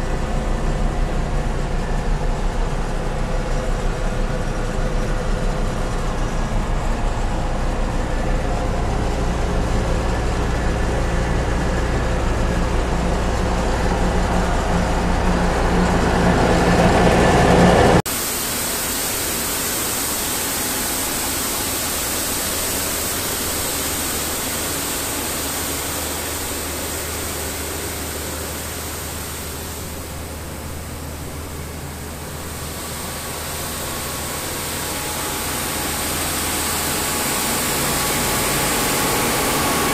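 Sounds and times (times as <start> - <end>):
engine hum from cab: 0.0 - 39.9
loud machine rushing noise: 18.7 - 39.9.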